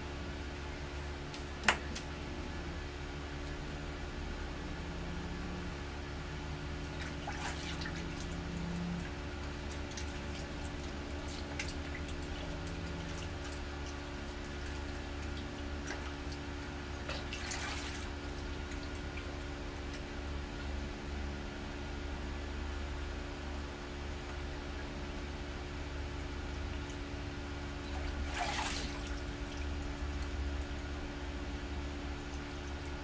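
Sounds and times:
water running at a sink: 6.8s - 20.8s
water splashing: 6.9s - 8.7s, 17.1s - 19.3s, 27.8s - 30.3s.

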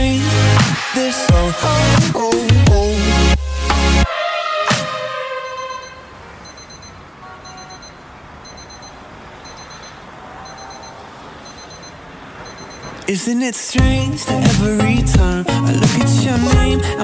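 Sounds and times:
electronic dance music: 0.0s - 6.0s, 13.8s - 17.0s
soft high double beep: 5.5s - 8.9s, 9.5s - 12.9s.

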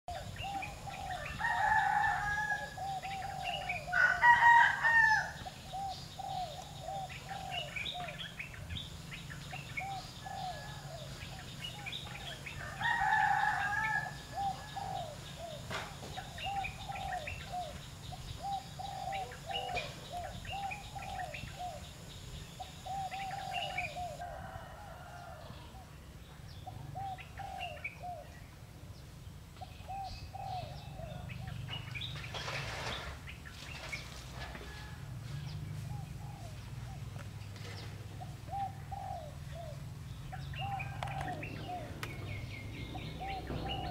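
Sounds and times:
rooster crowing: 0.8s - 5.5s, 9.8s - 11.2s, 12.2s - 15.2s, 22.8s - 25.9s, 34.5s - 35.5s, 40.5s - 42.0s.

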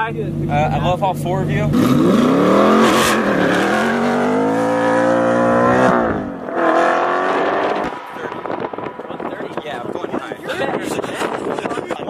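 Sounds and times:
car engine revving hard: 1.3s - 10.3s.

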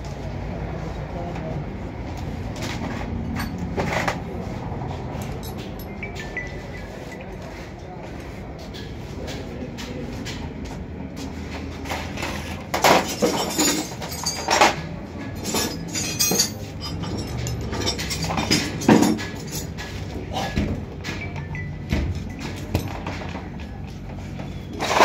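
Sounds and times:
metal tools clinking and clanking: 2.6s - 4.4s, 5.1s - 7.6s, 11.6s - 25.0s.

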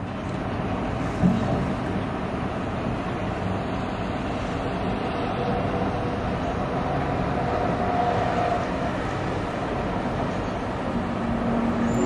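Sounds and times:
distant city traffic rumble: 0.0s - 12.0s
faint higher tone: 10.9s - 12.0s.

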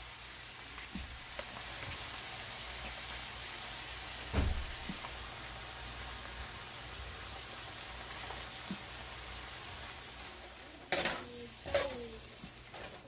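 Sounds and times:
sauce sizzling in a pan: 0.0s - 13.0s
metal spoon clanking on pan: 10.9s - 12.0s.

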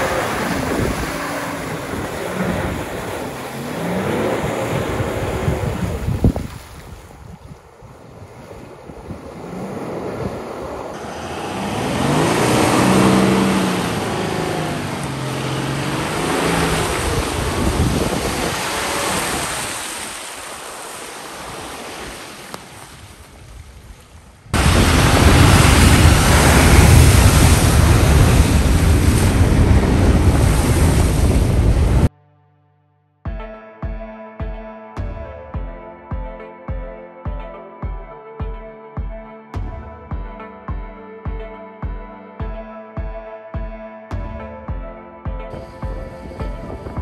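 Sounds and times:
diesel engine driving off-road: 0.0s - 6.2s, 8.2s - 20.2s, 24.5s - 32.1s
rushing tyres and wind: 0.0s - 32.1s, 45.5s - 47.0s.

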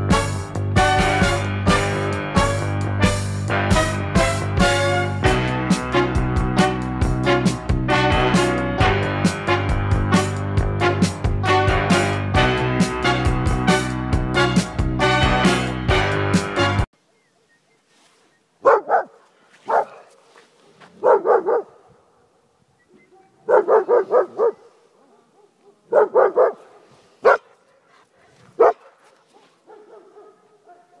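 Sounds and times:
music: 0.0s - 16.9s
dog barking: 18.6s - 21.9s, 23.0s - 31.0s.

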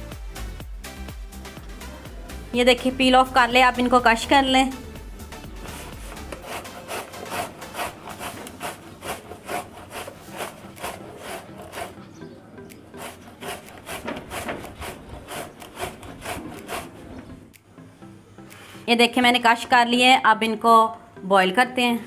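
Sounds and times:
grating on metal grater: 5.6s - 12.0s, 12.9s - 17.4s.

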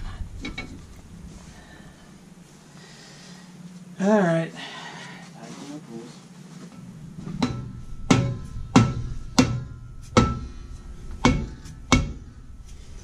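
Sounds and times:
mallet striking ringing brake drum: 7.0s - 12.5s.

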